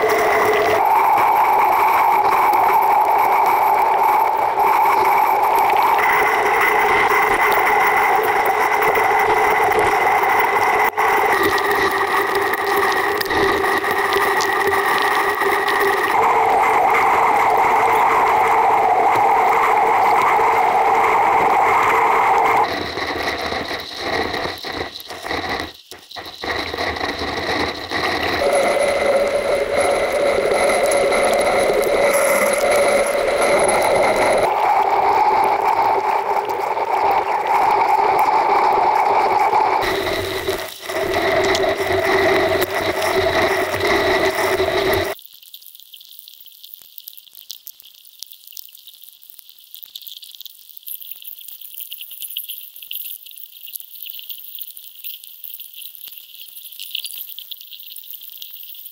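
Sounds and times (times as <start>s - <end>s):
whistle-like tones: 0.0s - 11.6s.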